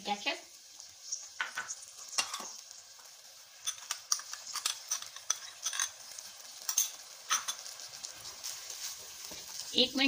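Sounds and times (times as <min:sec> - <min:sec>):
faint sizzle: 0:00.0 - 0:10.0
utensil scraping pan: 0:03.6 - 0:07.7.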